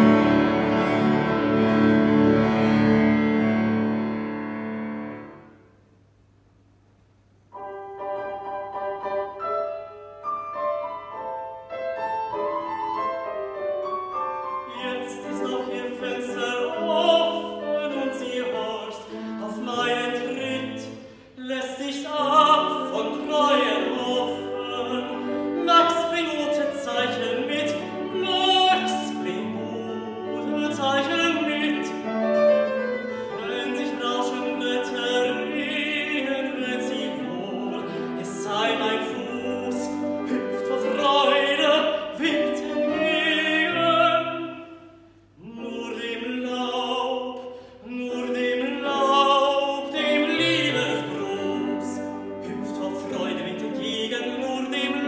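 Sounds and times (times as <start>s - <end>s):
grand piano: 0.0s - 55.0s
operatic tenor singing: 14.6s - 44.8s, 45.4s - 55.0s.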